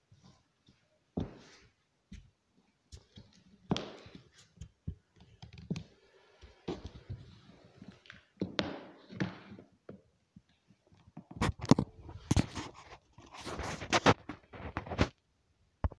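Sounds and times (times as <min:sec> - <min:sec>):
handling scrapes and rustles on floor: 0:11.4 - 0:15.2.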